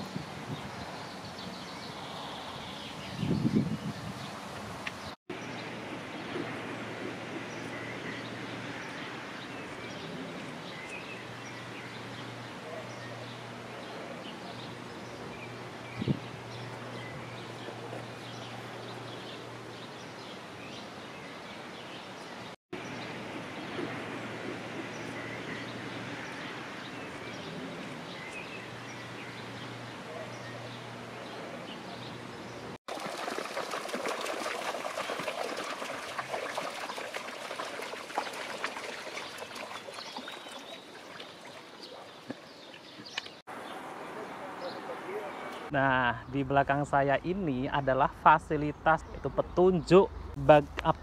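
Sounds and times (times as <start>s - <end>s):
small birds chirping: 34.9s - 51.0s.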